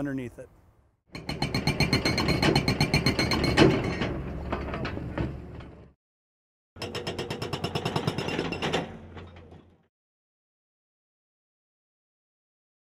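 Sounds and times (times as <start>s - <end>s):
hydraulic hammer pounding: 1.2s - 5.8s, 6.8s - 9.6s.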